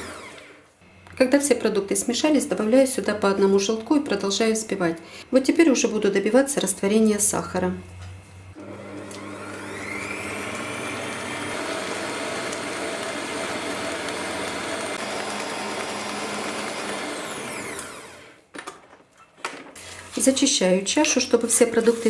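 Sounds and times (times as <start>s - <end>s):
stand mixer motor whining: 0.0s - 1.2s, 8.6s - 18.4s.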